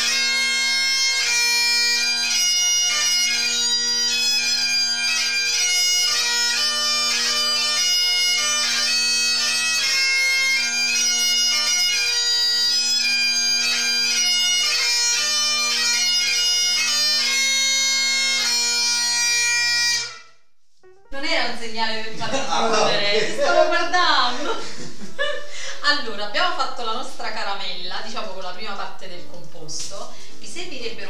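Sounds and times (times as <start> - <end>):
bagpipe drones: 0.0 - 21.5
bagpipe chanter melody: 0.0 - 21.6.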